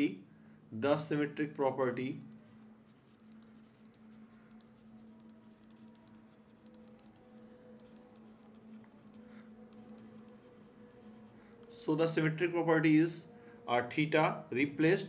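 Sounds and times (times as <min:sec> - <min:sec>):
faint steady hum: 0:00.0 - 0:15.0
stylus scratching on tablet screen: 0:01.2 - 0:12.6.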